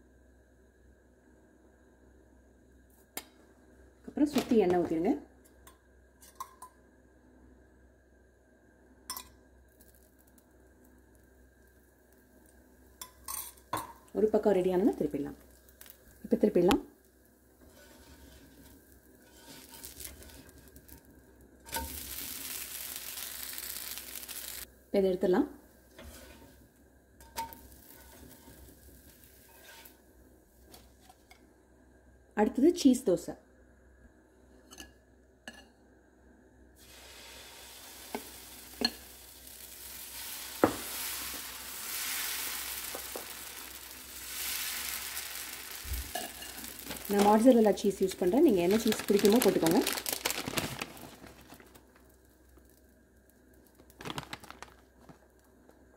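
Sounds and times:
batter sizzling on hot pan: 8.6 - 25.0, 25.6 - 31.4, 36.8 - 55.9
metal spatula scraping and tapping: 17.6 - 20.7, 29.4 - 30.0, 34.7 - 35.7.

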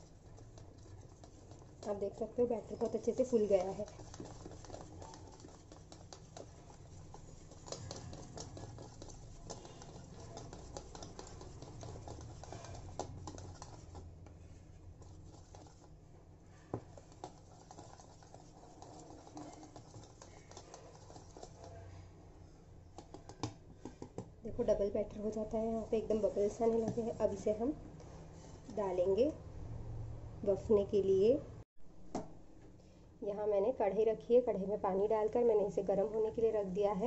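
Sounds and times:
whisk stirring batter in bowl: 0.0 - 29.4.

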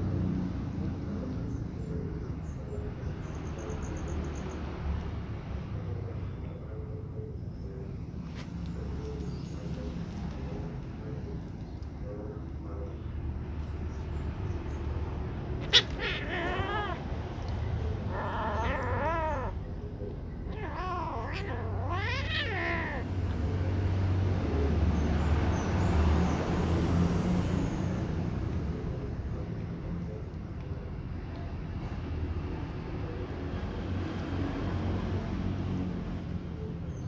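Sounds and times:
kittens meowing: 15.5 - 23.6.

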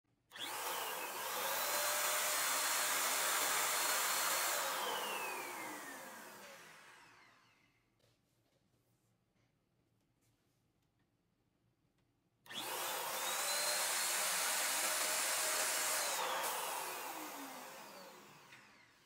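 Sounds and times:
balloon pump hissing and whining: 0.4 - 6.9, 12.6 - 19.0.

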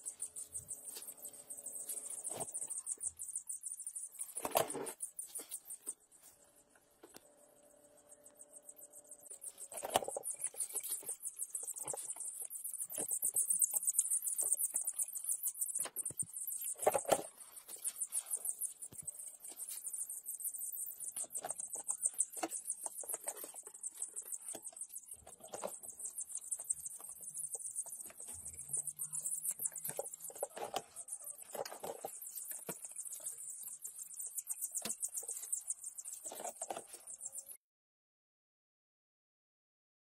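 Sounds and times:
chicks peeping: 8.0 - 37.6.

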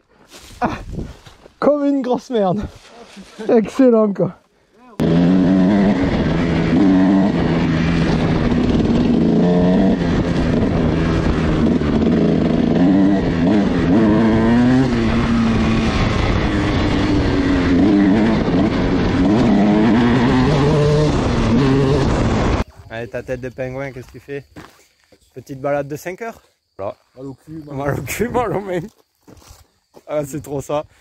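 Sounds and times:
dirt bike engine revving: 5.0 - 22.6.

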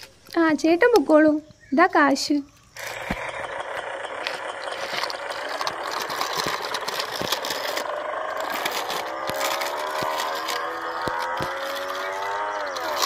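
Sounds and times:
small motor whirring and rattling: 2.6 - 13.0
small clicks: 4.2 - 13.0.

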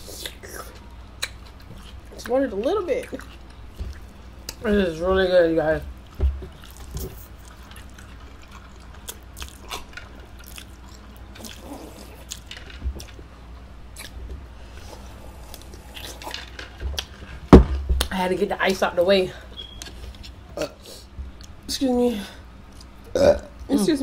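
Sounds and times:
chewing noodles: 6.0 - 13.2.

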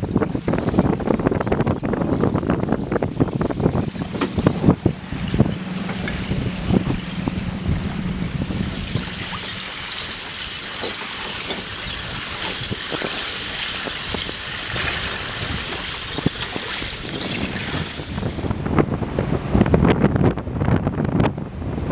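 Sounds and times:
boat motor hum: 0.0 - 21.9
water hiss: 6.1 - 18.3.

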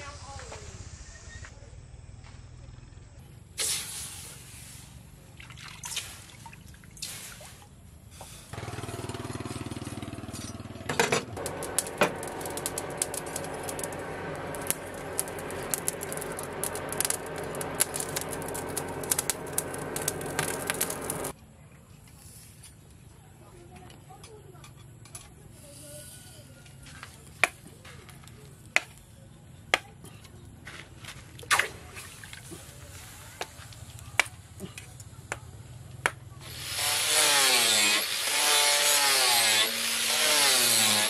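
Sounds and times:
forge forced air hum: 11.2 - 21.3
coals crackling and popping: 11.4 - 21.4.

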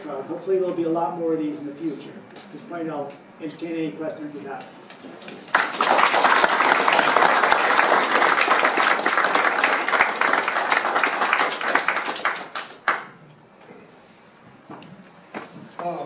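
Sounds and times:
audience applauding: 5.3 - 13.2.

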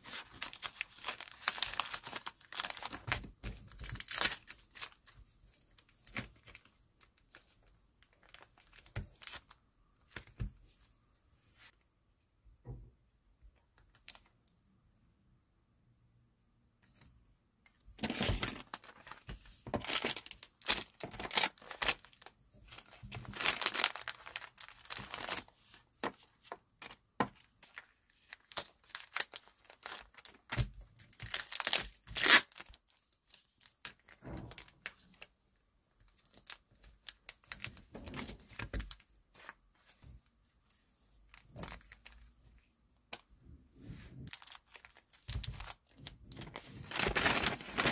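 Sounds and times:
plastic packaging crinkling: 0.0 - 10.3, 18.0 - 35.3, 36.0 - 39.6, 41.3 - 42.3, 44.2 - 47.9.

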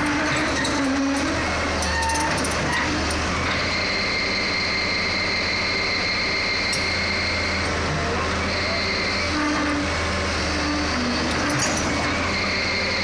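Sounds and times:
excavator diesel engine running: 0.0 - 13.0
steady high whine: 3.6 - 9.6.

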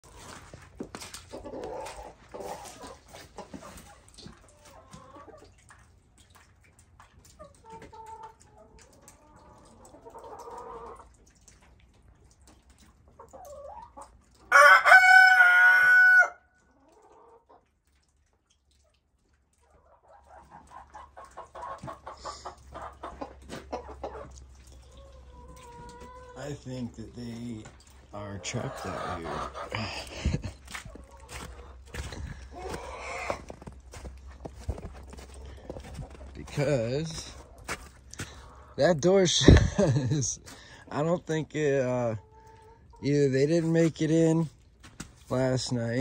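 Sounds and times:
chickens clucking: 0.0 - 46.0
rooster crowing: 14.5 - 16.4.

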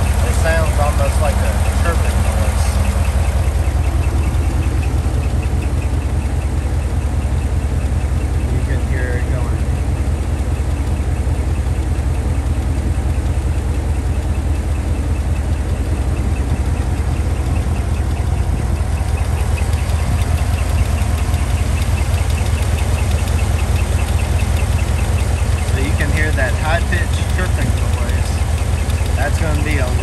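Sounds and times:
engine idling: 0.0 - 30.0.

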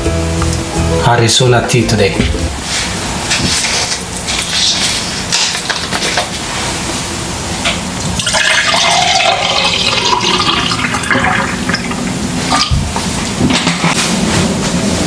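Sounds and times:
drink poured over ice: 8.2 - 11.5.

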